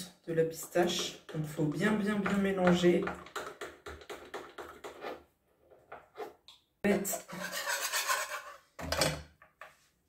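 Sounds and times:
metal spoon scraping glass jar: 0:06.9 - 0:08.6
saucepan scraping on hotplate: 0:07.0 - 0:08.6.

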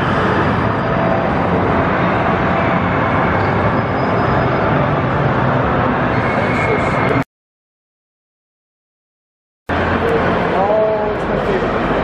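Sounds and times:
amusement park hall din: 0:09.7 - 0:12.0.

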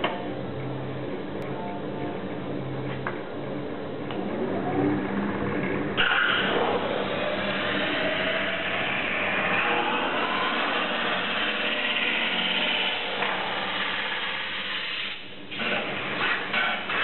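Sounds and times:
lathe grinding hiss: 0:06.0 - 0:17.0.

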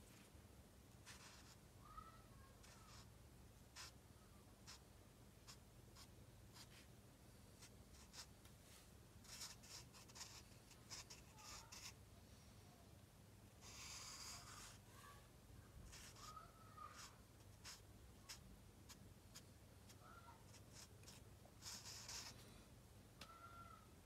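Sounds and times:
marker scratching on paper: 0:01.0 - 0:01.6, 0:02.6 - 0:03.1, 0:03.7 - 0:04.0, 0:04.6 - 0:04.8, 0:05.5 - 0:06.9, 0:07.6 - 0:08.3, 0:09.2 - 0:12.0, 0:13.6 - 0:14.8, 0:15.8 - 0:22.4.

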